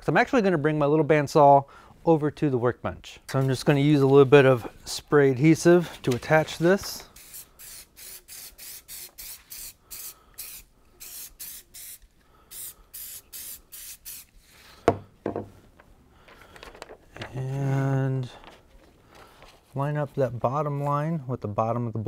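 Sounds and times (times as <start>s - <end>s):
aerosol can spraying: 7.2s - 14.6s
can knocking on wooden bench: 14.9s - 15.5s.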